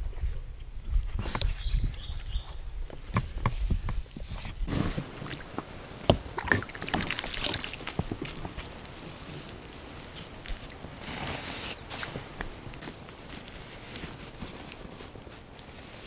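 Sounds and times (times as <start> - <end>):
water splashing and streaming: 5.0 - 11.9.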